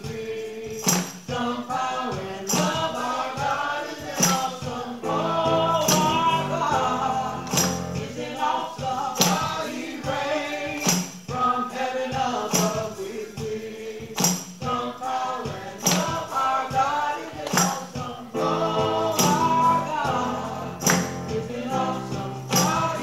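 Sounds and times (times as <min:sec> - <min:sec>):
congregation singing gospel: 0:00.0 - 0:23.0
tambourine strikes: 0:00.0 - 0:23.0
sustained keyboard chords: 0:05.0 - 0:08.5, 0:18.4 - 0:23.0.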